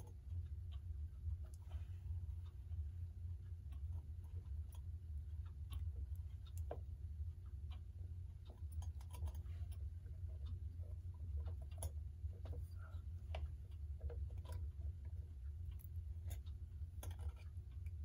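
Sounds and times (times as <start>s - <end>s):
steady low hum: 0.0s - 18.0s
small metal clicks and taps: 5.5s - 7.0s, 8.4s - 18.0s.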